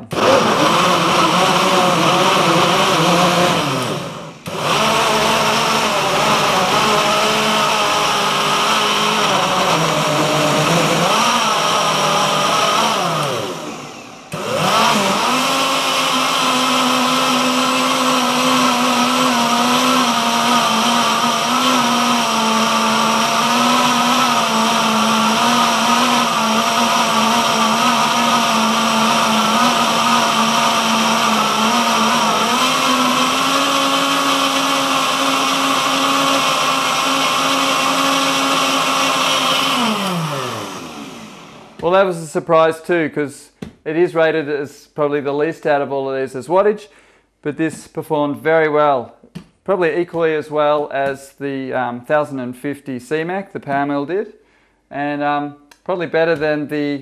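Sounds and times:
blender motor blending: 0.0s - 41.9s.

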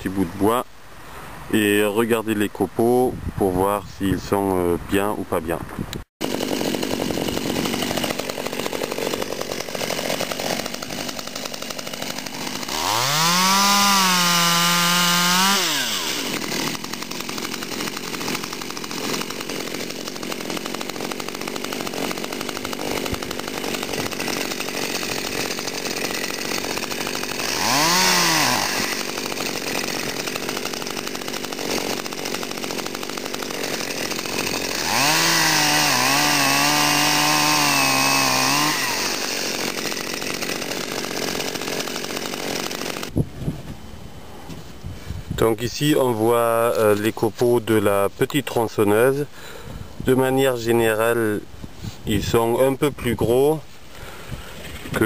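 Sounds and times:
chainsaw idling and revving: 6.2s - 43.2s.

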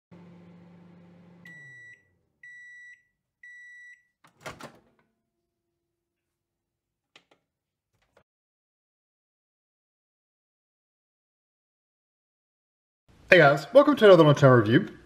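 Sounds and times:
microwave oven humming: 0.1s - 2.7s
microwave beeps: 1.1s - 4.2s.

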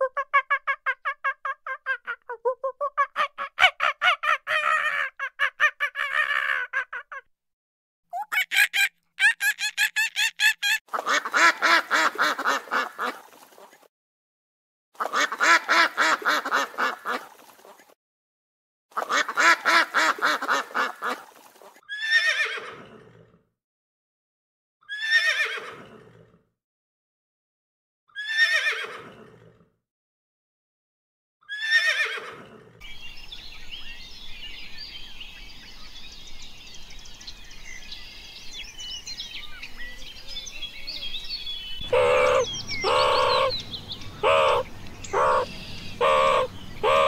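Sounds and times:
animal calling in rapid pitched notes: 8.1s - 10.8s.

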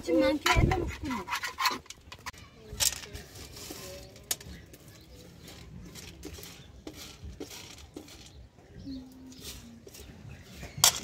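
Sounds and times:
beans rattling on metal tray: 5.4s - 8.4s.

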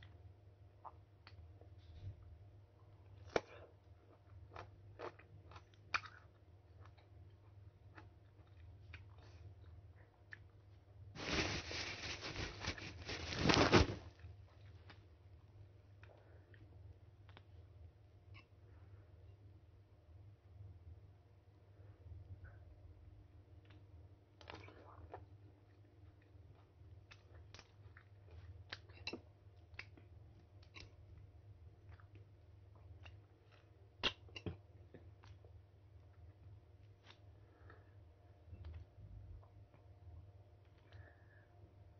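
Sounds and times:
low steady hum: 0.0s - 41.9s
person chewing with crunches: 3.0s - 10.6s.

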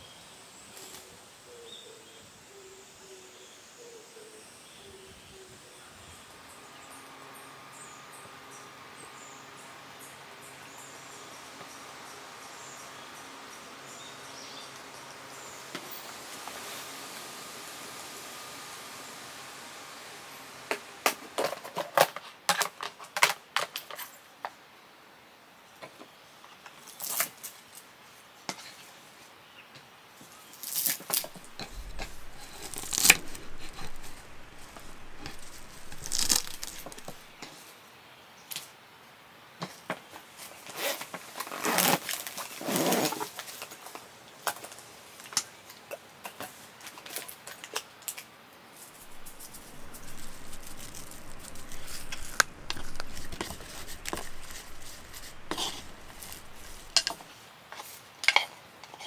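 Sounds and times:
rustling and crinkling: 30.5s - 37.6s, 48.8s - 58.0s.

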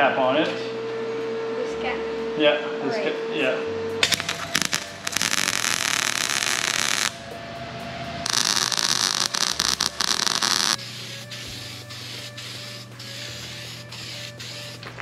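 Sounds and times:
steady hum: 0.0s - 15.0s
welder arc crackling: 4.0s - 7.2s, 8.2s - 15.0s.

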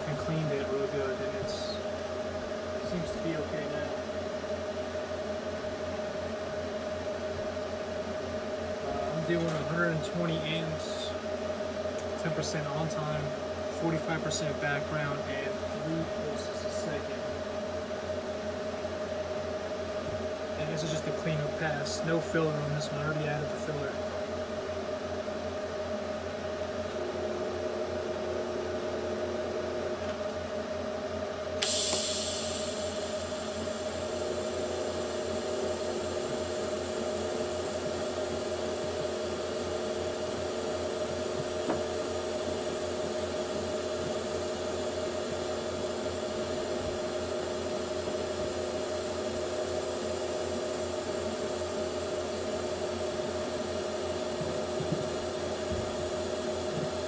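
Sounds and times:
machine hum with fixed tones: 0.0s - 57.0s
welding arc hissing: 31.6s - 57.0s.

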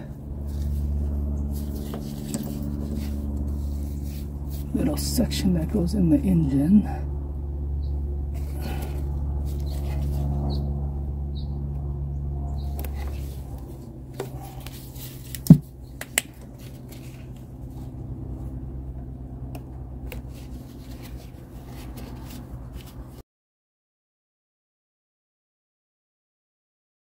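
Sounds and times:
steady low hum: 0.0s - 23.2s.

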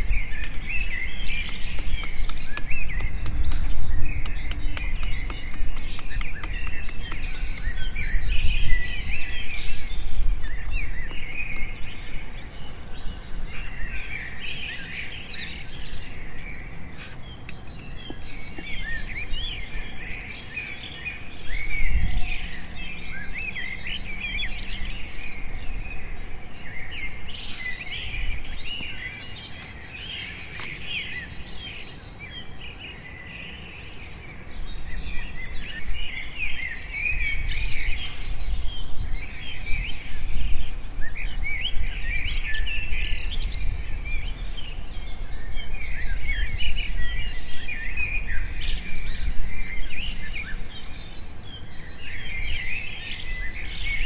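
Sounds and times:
small birds chirping: 0.0s - 54.0s
machete knocking on bamboo: 1.4s - 7.9s.

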